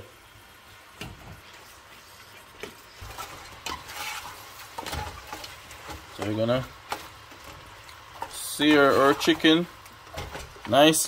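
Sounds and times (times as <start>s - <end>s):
faint sizzle: 0.0s - 11.0s.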